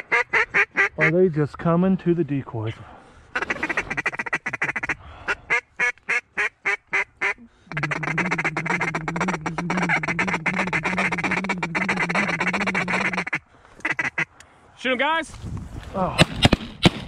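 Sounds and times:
duck quacking: 0.0 - 1.2, 3.4 - 14.3
duck chattering: 3.4 - 14.2.

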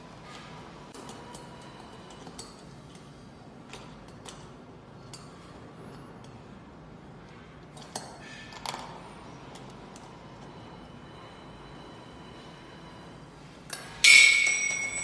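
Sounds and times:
metallic clinks of bolts: 13.7 - 15.0.

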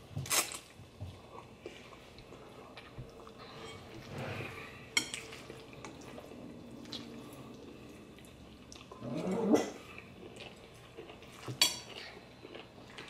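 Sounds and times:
cutlery clicking against bowls: 11.5 - 12.0.

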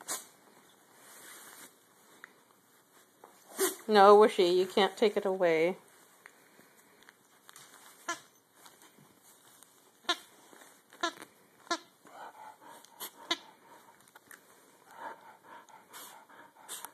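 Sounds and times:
dog toy squeaking: 10.0 - 10.3, 10.9 - 11.9.

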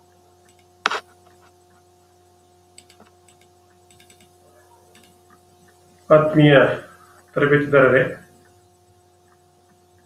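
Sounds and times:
low electrical hum: 0.0 - 10.0
faint ticks: 2.7 - 6.1, 8.4 - 10.0.

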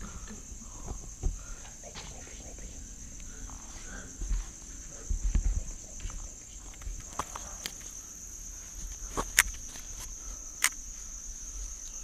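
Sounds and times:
night insects chirring: 0.0 - 12.0
sharp clicks: 10.6 - 10.8.

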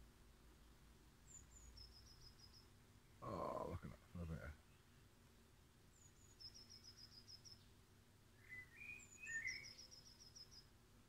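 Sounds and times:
songbird trills: 1.2 - 3.6, 5.8 - 10.8.

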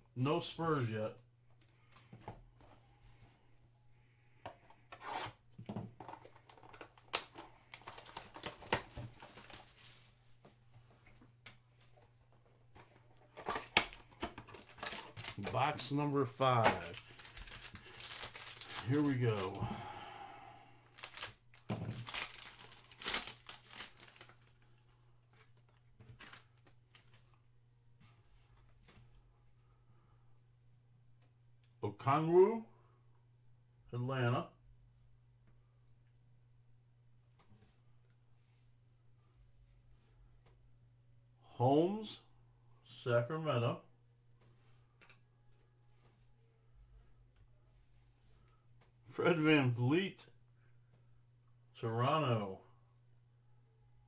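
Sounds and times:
cards rustling: 6.0 - 10.2, 12.8 - 19.8, 20.9 - 27.3
plastic wrapper crinkling: 6.2 - 10.0, 13.2 - 19.6, 20.9 - 24.8.

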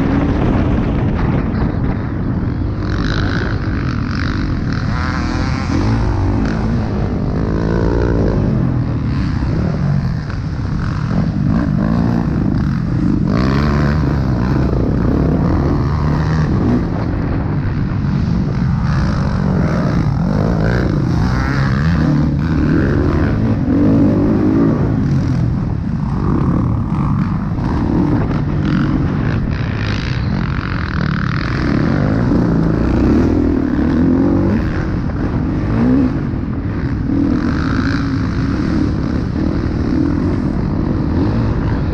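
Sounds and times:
dirt bike engine revving: 0.0 - 41.9.

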